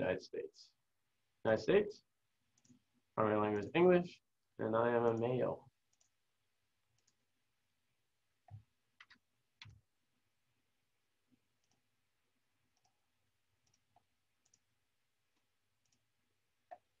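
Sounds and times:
computer mouse clicks: 0:02.6 - 0:02.8, 0:05.9 - 0:06.2, 0:06.9 - 0:07.2, 0:08.5 - 0:09.8, 0:11.6 - 0:11.8, 0:12.7 - 0:13.0, 0:13.6 - 0:14.6, 0:15.4 - 0:16.0.

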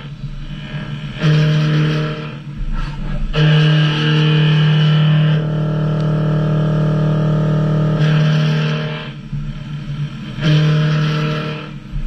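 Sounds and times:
machine cutting metal: 0:00.0 - 0:12.0.

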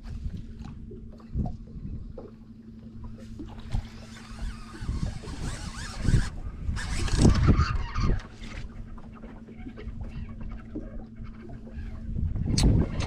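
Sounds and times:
wind buffeting microphone: 0:00.0 - 0:02.2, 0:03.4 - 0:08.9, 0:09.6 - 0:13.0
low hum: 0:00.0 - 0:13.0
fishing reel cranking hiss: 0:04.0 - 0:07.3.

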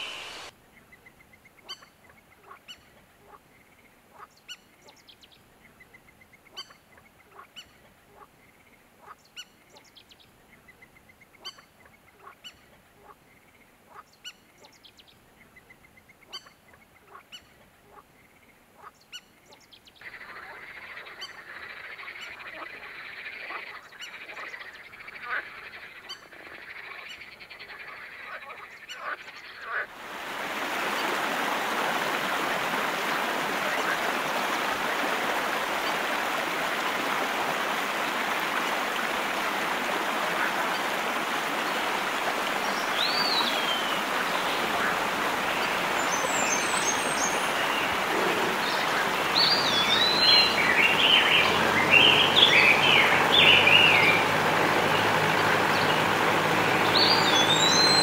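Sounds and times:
river running over stones: 0:00.0 - 0:00.5, 0:29.8 - 0:58.0.

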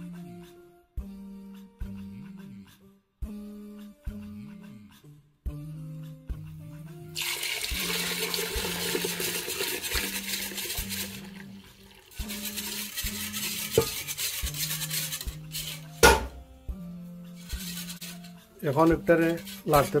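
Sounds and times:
whisk beating milk in a bowl: 0:07.8 - 0:15.9, 0:17.4 - 0:20.0
sharp knock: 0:16.0 - 0:16.4.

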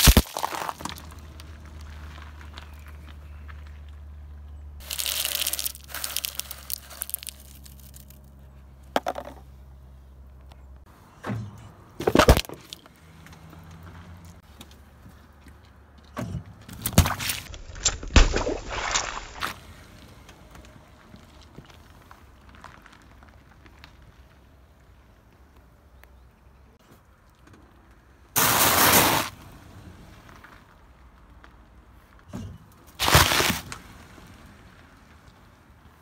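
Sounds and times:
carton bursting: 0:00.0 - 0:01.1, 0:04.8 - 0:08.1, 0:28.4 - 0:29.3, 0:33.0 - 0:33.8
carton cracking and popping: 0:00.0 - 0:01.6, 0:04.8 - 0:08.2, 0:12.0 - 0:12.8, 0:16.8 - 0:19.5, 0:33.0 - 0:33.9
candy crunching under tyre: 0:00.0 - 0:03.8, 0:04.8 - 0:09.4, 0:12.0 - 0:12.9, 0:32.9 - 0:34.0.

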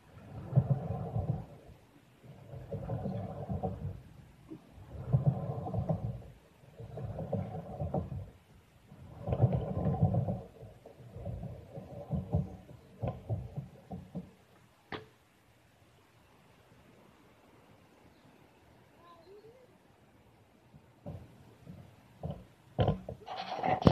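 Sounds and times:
scooter wheels rolling on concrete: 0:00.0 - 0:15.1, 0:21.0 - 0:23.9.

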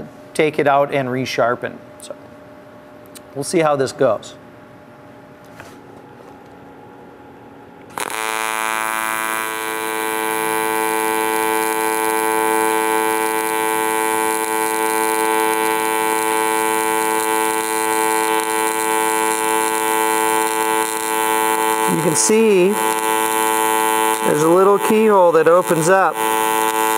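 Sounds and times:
welding arc buzzing: 0:07.9 - 0:26.9.

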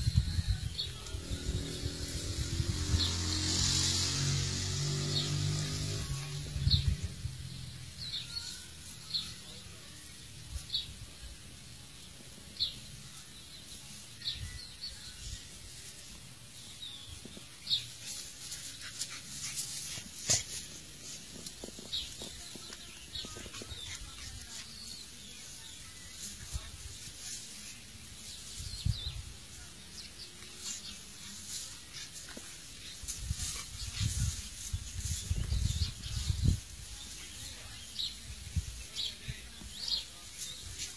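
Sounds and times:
animals scuffling: 0:15.2 - 0:40.9.

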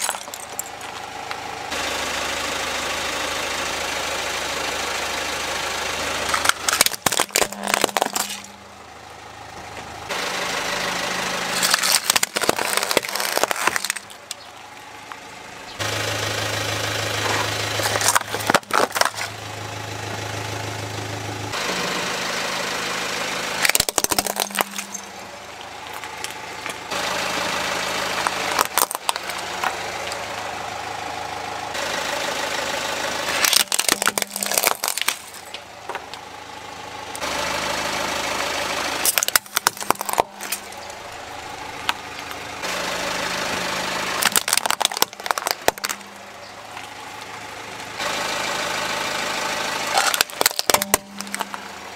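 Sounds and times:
toy vehicles cracking and crunching: 0:00.0 - 0:01.4, 0:06.0 - 0:08.6, 0:11.3 - 0:15.3, 0:17.1 - 0:19.4, 0:23.6 - 0:30.5, 0:33.3 - 0:36.2, 0:39.0 - 0:42.4, 0:44.1 - 0:47.4, 0:49.8 - 0:51.9
car engine idling: 0:00.0 - 0:51.9.

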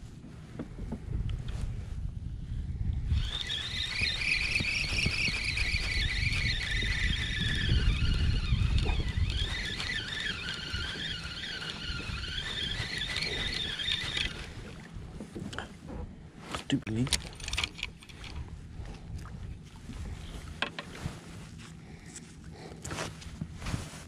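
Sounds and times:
wind rumble on microphone: 0:00.0 - 0:16.4, 0:17.8 - 0:22.1, 0:22.9 - 0:24.0
fishing reel gears whining: 0:03.1 - 0:14.6.

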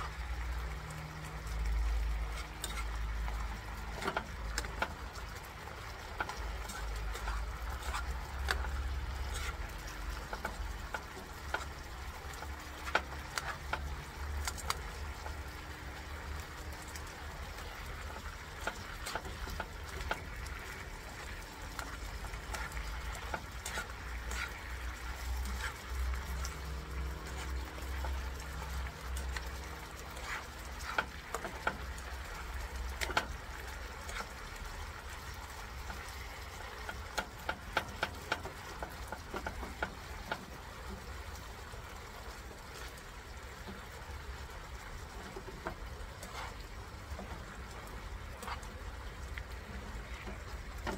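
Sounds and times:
low steady rumble: 0:00.0 - 0:50.9
meat sizzling in a frying pan: 0:00.0 - 0:50.9
metal tongs scraping a pan: 0:01.3 - 0:15.5, 0:17.6 - 0:34.6, 0:45.6 - 0:49.3.

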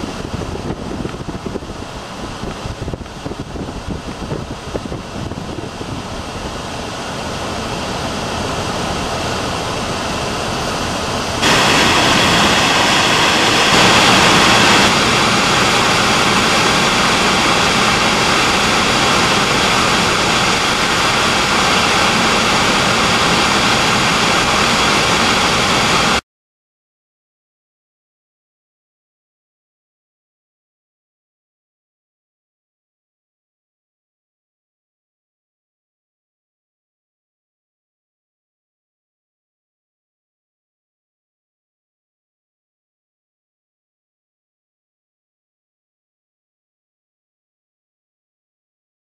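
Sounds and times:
car road and wind noise: 0:00.0 - 0:26.2.

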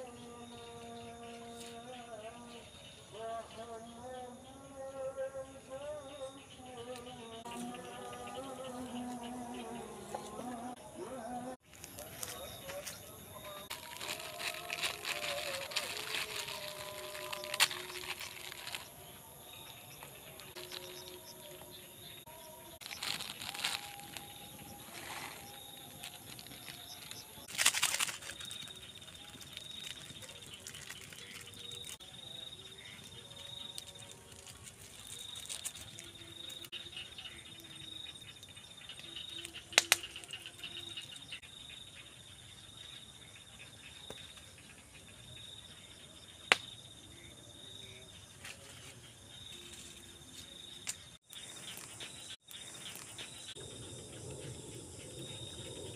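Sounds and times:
insects trilling: 0:00.0 - 0:55.9
cooking fire rustling: 0:11.7 - 0:19.0
fire popping: 0:39.8 - 0:40.4.

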